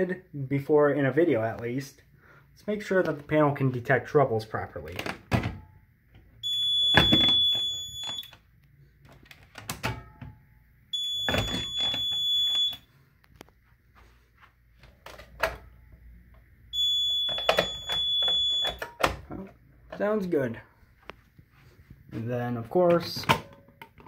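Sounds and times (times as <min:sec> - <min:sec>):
alarm panel high beep: 0:06.4 - 0:08.4, 0:11.0 - 0:12.9, 0:16.8 - 0:18.9.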